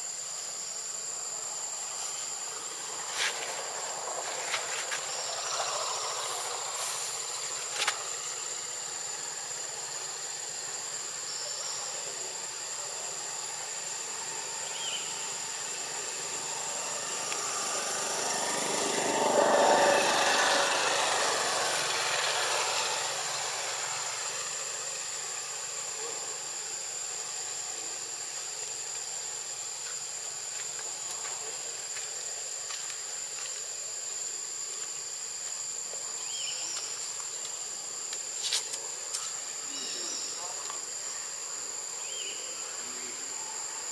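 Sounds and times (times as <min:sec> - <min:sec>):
high-pitched insect drone: 0:00.0 - 0:43.9
vehicle passing: 0:16.4 - 0:24.6.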